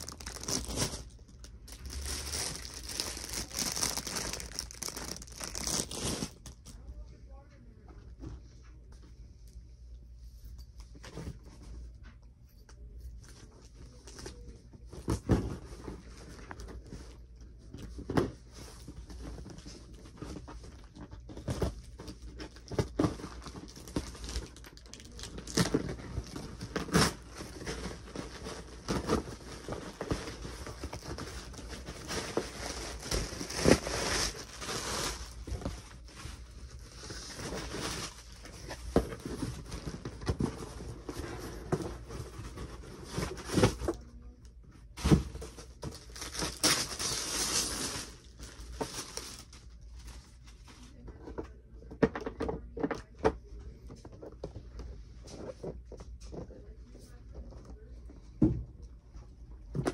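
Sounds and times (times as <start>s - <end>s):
cardboard tearing and crinkling: 0.0s - 6.6s, 21.2s - 44.0s, 45.0s - 49.6s.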